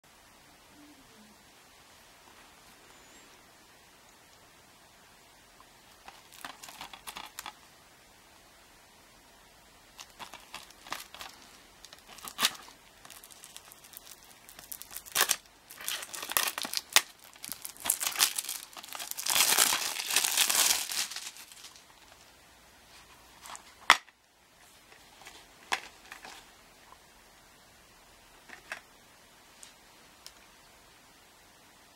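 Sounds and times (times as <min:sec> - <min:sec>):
plastic wrap crinkling: 0:06.0 - 0:07.6, 0:10.0 - 0:22.3.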